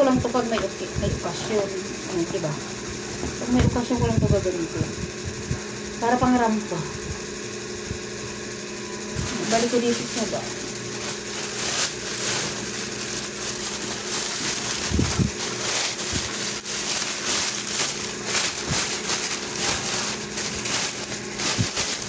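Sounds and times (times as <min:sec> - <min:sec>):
plastic bag crinkling: 0:09.2 - 0:22.0.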